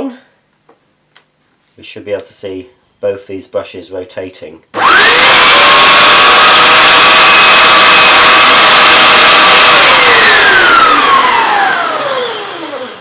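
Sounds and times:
carpet washer whining: 0:04.8 - 0:13.0.

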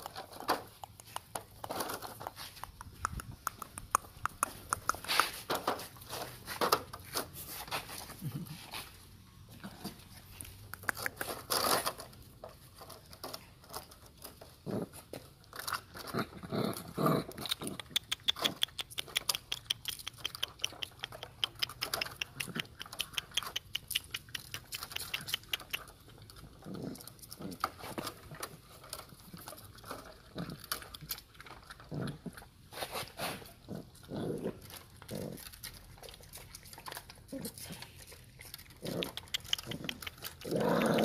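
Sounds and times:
mouth sounds: 0:02.5 - 0:05.5
puppies licking wet smacks: 0:02.6 - 0:05.3, 0:17.8 - 0:26.5, 0:35.5 - 0:40.5.

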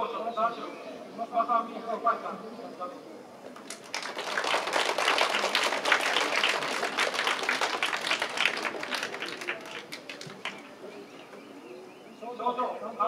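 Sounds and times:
crowd applauding: 0:03.6 - 0:10.7.

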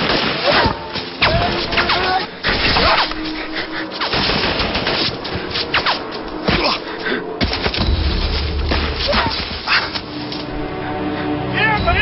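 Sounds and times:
rapid gunfire: 0:04.0 - 0:06.0.

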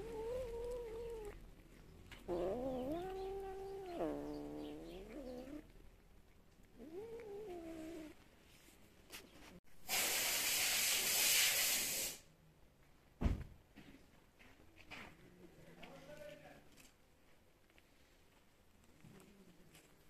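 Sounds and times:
cat hissing: 0:00.0 - 0:01.4, 0:02.3 - 0:05.7, 0:06.8 - 0:08.2, 0:09.9 - 0:12.2
cat yowling: 0:00.0 - 0:01.4, 0:02.3 - 0:05.7, 0:06.8 - 0:08.1.

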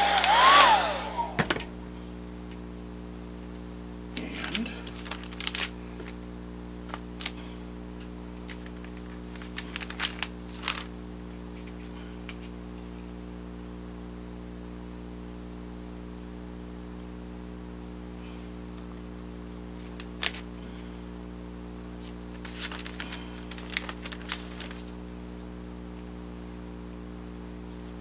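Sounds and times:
steady low hum: 0:00.0 - 0:28.0
foam strips rustling on newspaper: 0:04.2 - 0:06.2, 0:06.9 - 0:07.6, 0:08.4 - 0:13.1, 0:19.8 - 0:20.8, 0:22.0 - 0:25.0.

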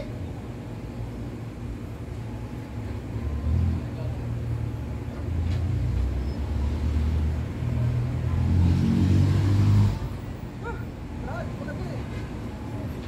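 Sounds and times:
crane engine humming: 0:00.0 - 0:05.4, 0:10.0 - 0:13.0.

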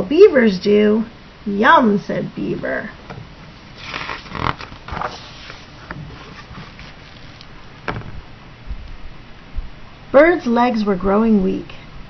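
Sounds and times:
paper page rustling: 0:03.8 - 0:07.5.

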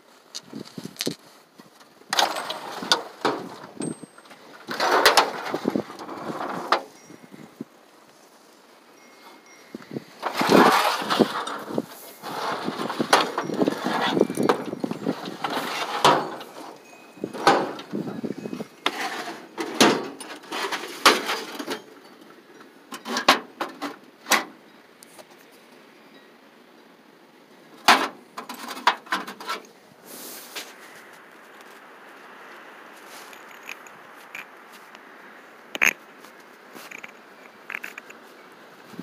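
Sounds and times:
tools clattering in metal toolbox: 0:02.1 - 0:07.0, 0:10.2 - 0:22.0, 0:22.9 - 0:24.5.

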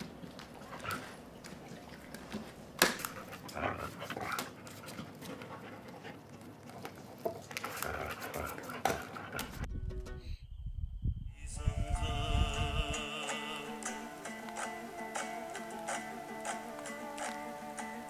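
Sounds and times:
dog panting and chewing: 0:00.2 - 0:09.7.

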